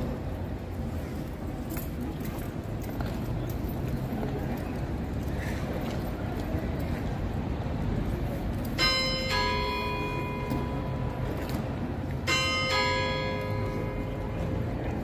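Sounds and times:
clock bells chiming: 8.8 - 15.0.

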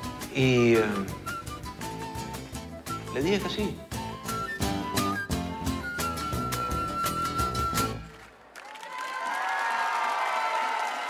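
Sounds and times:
instrumental music with steady beat: 0.0 - 8.1.

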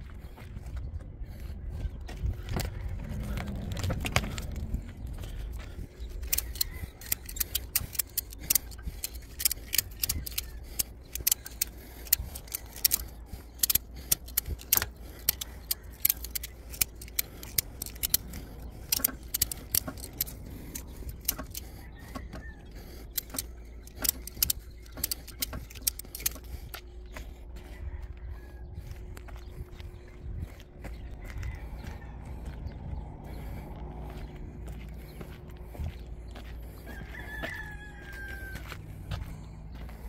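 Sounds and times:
low rumble: 0.0 - 6.7
ratchet strap clicking: 6.2 - 26.8.

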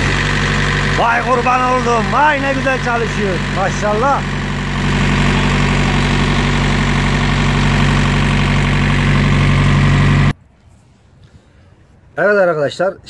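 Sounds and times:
diesel engine running: 0.0 - 10.4.

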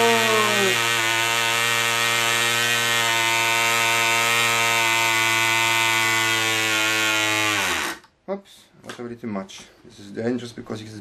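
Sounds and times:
model engine buzzing: 0.0 - 8.0.

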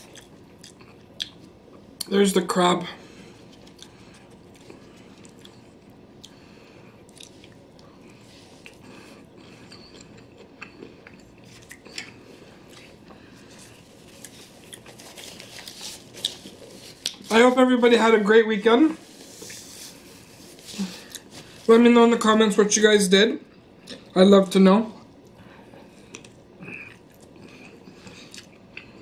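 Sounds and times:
person chewing: 0.0 - 2.1, 3.2 - 17.3, 19.0 - 21.7, 25.3 - 29.0
paper napkin rustling: 13.4 - 22.1.

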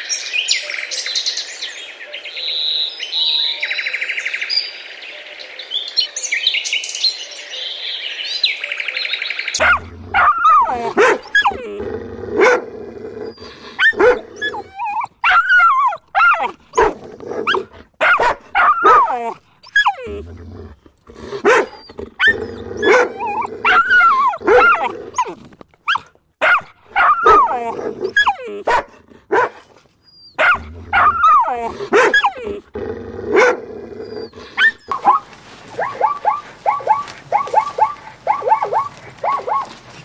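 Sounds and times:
dog barking: 9.6 - 11.6, 12.4 - 12.7, 13.8 - 14.6, 15.3 - 19.3, 21.4 - 24.9, 25.9 - 29.6, 30.4 - 32.4, 33.4 - 33.6, 35.8 - 39.8.

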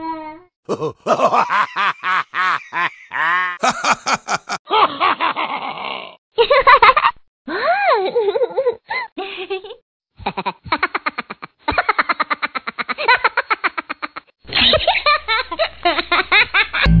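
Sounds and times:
people laughing: 0.7 - 5.0.

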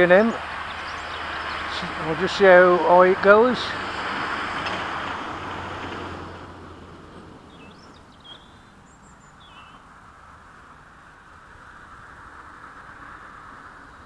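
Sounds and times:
rushing outdoor background: 0.0 - 14.0
bird chirps: 7.5 - 9.9.

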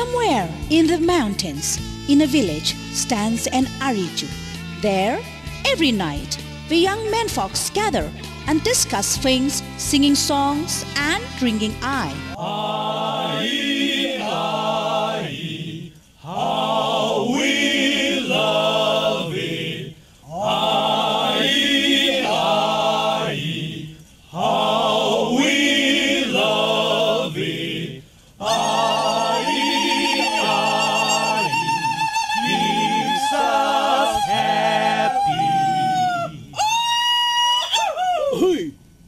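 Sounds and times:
group of men singing: 12.4 - 36.6.

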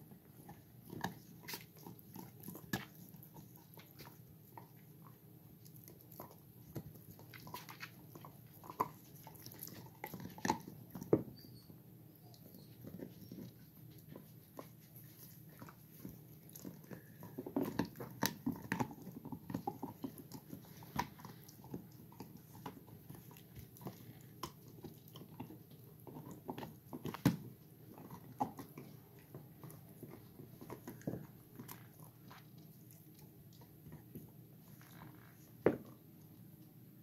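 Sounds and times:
puppies gnawing chew bones: 0.0 - 37.0.

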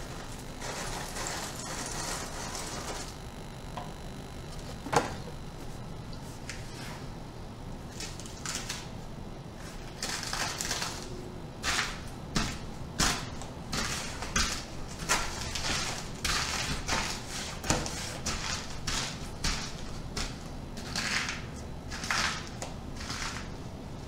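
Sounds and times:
crackers crunching underfoot: 0.0 - 6.7, 9.8 - 17.6.

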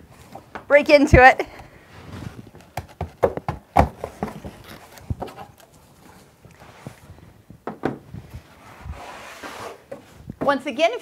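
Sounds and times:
cardboard flaps knocking and scraping: 2.1 - 5.5, 7.6 - 8.4.

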